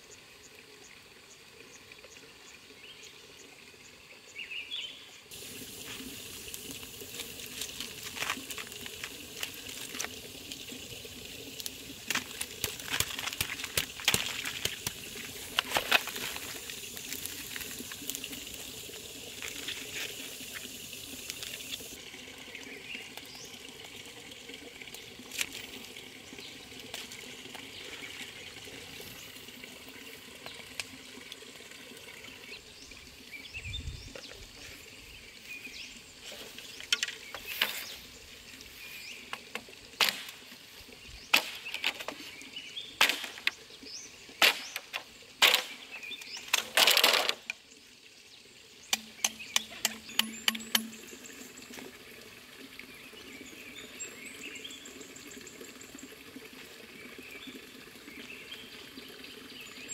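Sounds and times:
stream water rushing: 4.4 - 33.7, 48.7 - 59.9
blade chopping bamboo: 43.0 - 43.5, 44.4 - 45.8.

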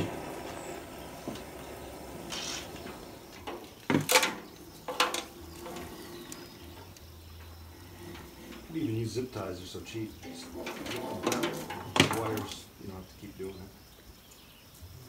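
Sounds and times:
metal rack clanking and rattling: 2.6 - 6.9, 9.9 - 12.6.

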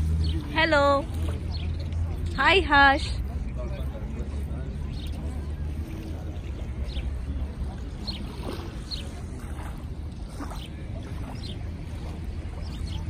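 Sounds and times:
water lapping at shore: 0.0 - 13.0.

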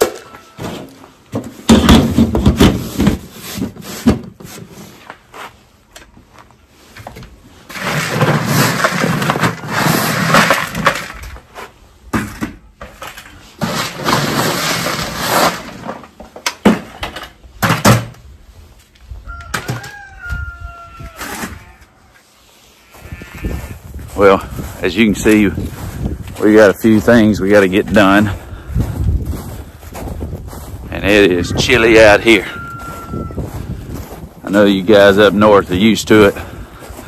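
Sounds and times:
feed pellets pouring into buckets: 13.6 - 15.8.

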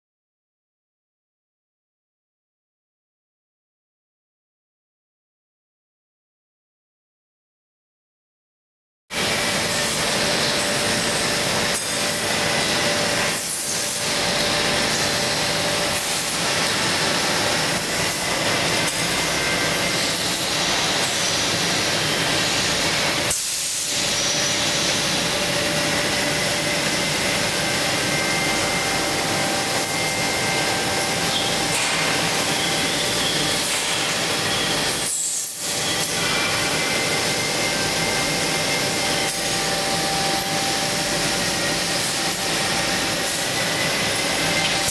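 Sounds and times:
machinery whirring hiss: 9.2 - 44.9.

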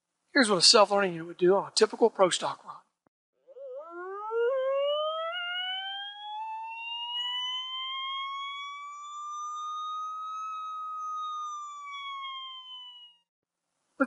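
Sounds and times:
rising and falling electronic tone: 3.5 - 13.3.

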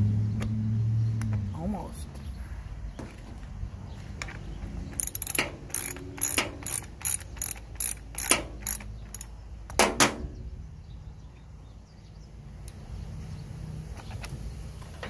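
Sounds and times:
ratchet clicking: 4.9 - 9.3.

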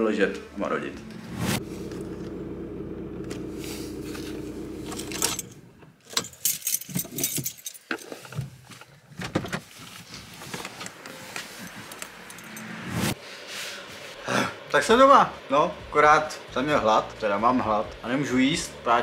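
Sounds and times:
car engine running: 1.0 - 5.8
keys jingling: 4.9 - 8.1.

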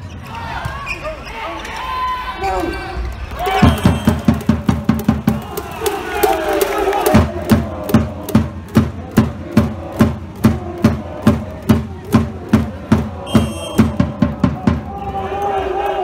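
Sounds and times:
short high whistle: 3.6 - 4.2, 13.3 - 13.9.

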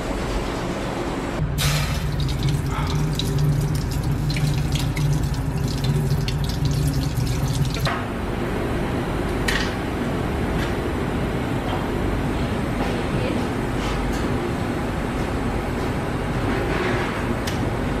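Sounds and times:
tap water running into sink: 1.6 - 8.0.

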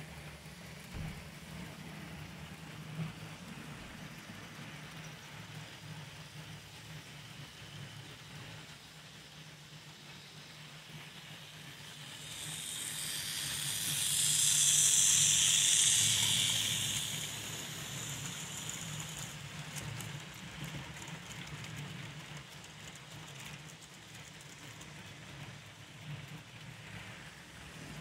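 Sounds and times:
high hiss of passing train: 0.0 - 28.0
model train running hum: 0.0 - 28.0
wheels clicking over track: 11.2 - 27.3.

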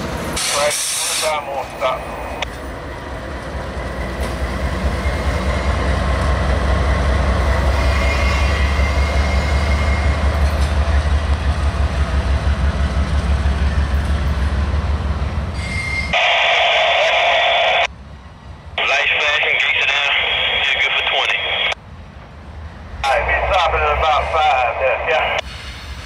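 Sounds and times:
locomotive engine rumble: 0.0 - 26.0
wheel squeal: 7.6 - 10.2, 15.5 - 16.2
two-way radio static: 16.2 - 17.9, 18.8 - 21.8, 23.0 - 25.4.

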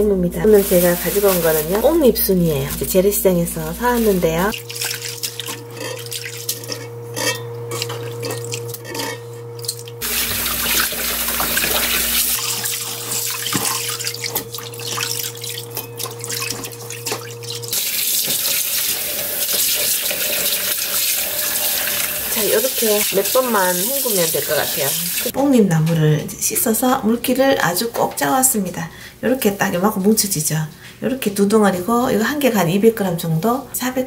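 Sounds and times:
steady low hum: 0.0 - 17.7
leaves swished in water: 0.5 - 2.1, 3.6 - 6.6
tap water running into bowl: 9.6 - 25.3.

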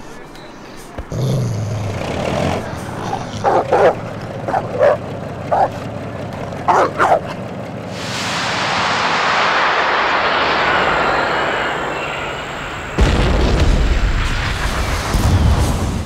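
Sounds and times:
loud rushing noise: 2.6 - 16.0
dog barking and yipping: 3.4 - 5.8, 6.7 - 7.4.

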